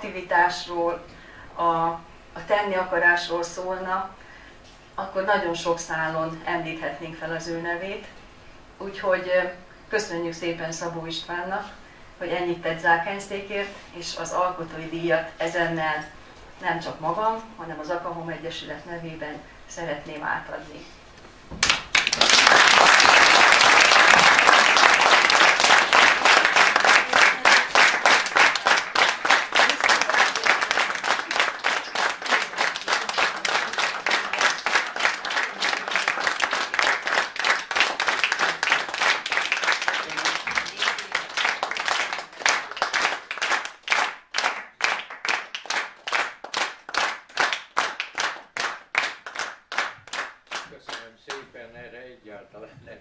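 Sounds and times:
audience applauding: 21.6s - 51.1s
rhythmic clapping in unison: 21.6s - 51.4s.

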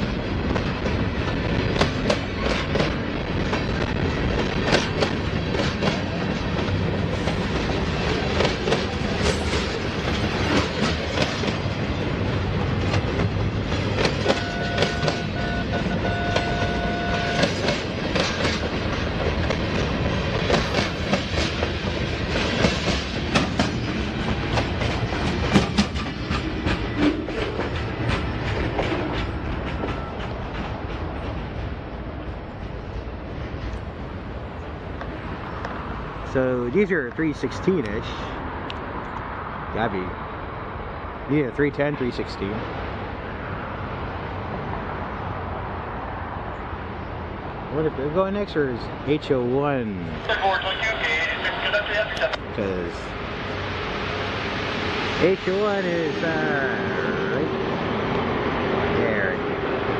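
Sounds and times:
train wheels clacking over rails: 0.0s - 32.9s.

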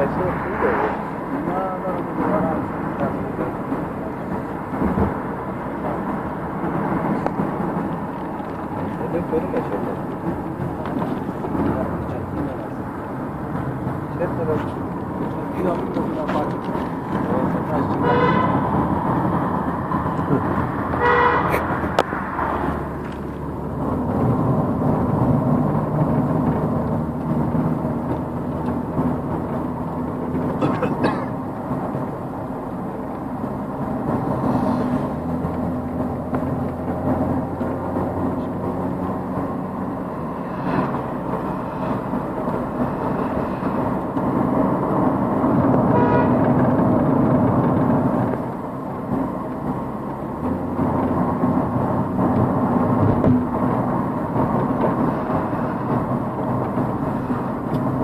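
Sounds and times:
car engine and road noise: 0.0s - 58.0s
vehicle horn honking: 18.0s - 18.6s, 21.0s - 21.6s, 45.9s - 46.5s.

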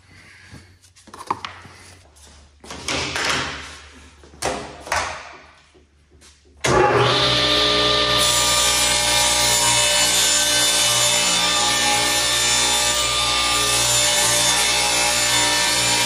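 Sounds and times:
table saw cutting wood: 6.7s - 16.0s.

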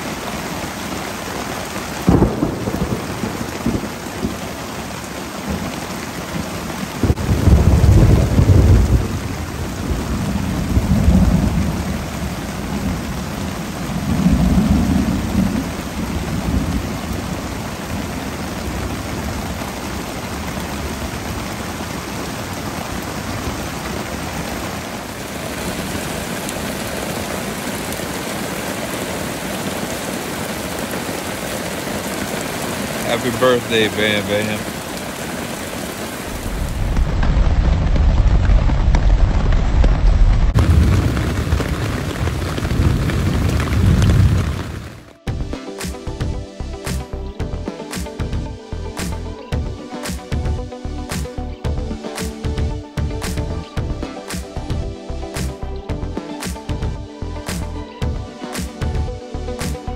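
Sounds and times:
steady rain: 0.0s - 59.9s
low rolls of thunder: 2.0s - 4.6s, 7.0s - 17.5s, 36.2s - 45.0s.

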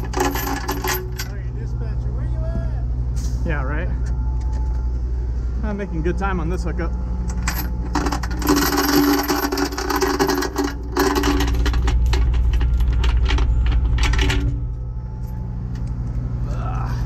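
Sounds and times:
chains rattling and clinking: 0.0s - 1.5s, 7.2s - 14.6s
truck engine running: 0.0s - 17.0s.

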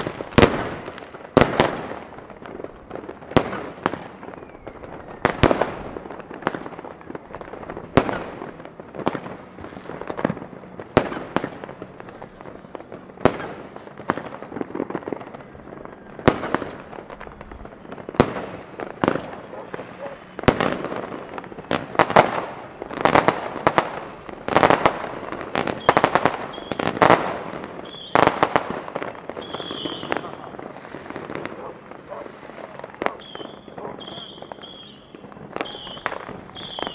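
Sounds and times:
fireworks and firecrackers banging: 0.0s - 36.9s.

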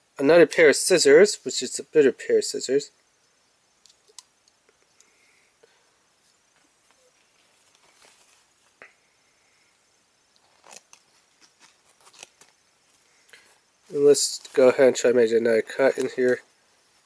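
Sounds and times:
paper rustling: 6.8s - 8.8s, 10.4s - 16.4s.

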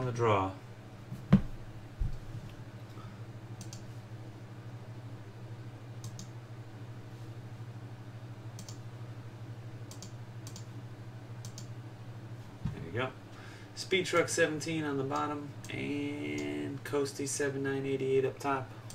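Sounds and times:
steady low hum: 0.0s - 18.9s
computer mouse clicks: 3.6s - 3.8s, 6.0s - 6.3s, 8.6s - 8.8s, 9.9s - 10.7s, 11.4s - 11.7s.

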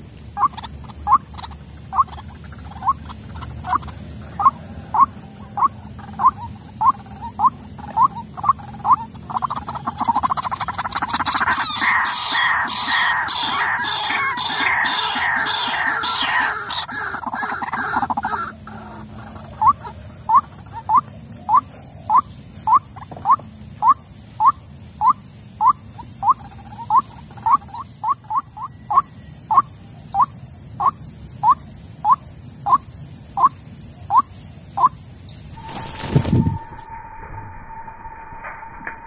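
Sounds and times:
bird harsh calling: 0.4s - 36.9s
bird short rising notes: 35.6s - 39.0s.

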